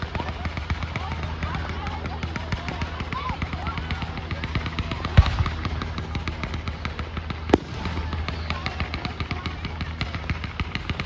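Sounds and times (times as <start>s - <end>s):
fireworks crackling: 0.0s - 11.0s
loud firework boom: 7.4s - 8.3s.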